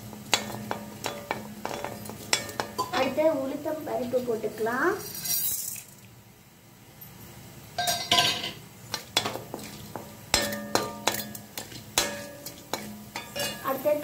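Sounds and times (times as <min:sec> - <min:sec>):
spatula clinking and scraping on pan: 0:00.0 - 0:03.2, 0:07.8 - 0:14.0.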